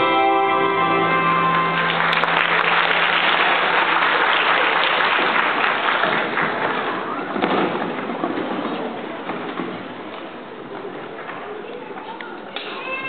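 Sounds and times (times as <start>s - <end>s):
melodica band held note: 0.0s - 2.7s
audience applauding: 1.3s - 8.2s.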